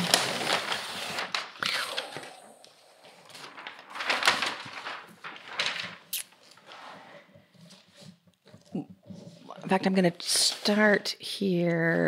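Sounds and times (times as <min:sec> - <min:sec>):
paper sheets rustling and sliding: 0:00.0 - 0:08.2.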